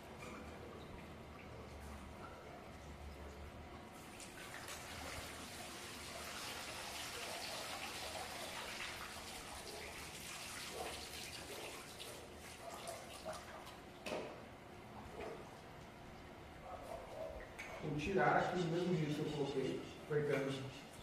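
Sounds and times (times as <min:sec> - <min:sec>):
water running and splashing: 0:04.0 - 0:13.9.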